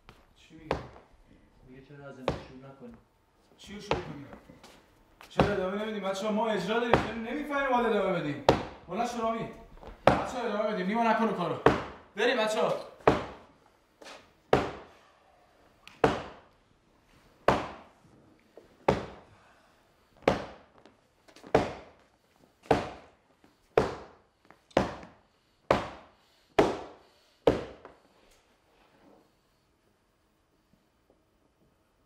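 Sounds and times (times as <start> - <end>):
heavy thuds with hall echo: 5.3 - 5.7, 6.8 - 7.4, 8.4 - 8.9, 10.0 - 10.4, 11.6 - 12.1, 13.0 - 13.5, 14.5 - 14.9, 16.0 - 16.5, 17.4 - 18.0, 18.8 - 19.3.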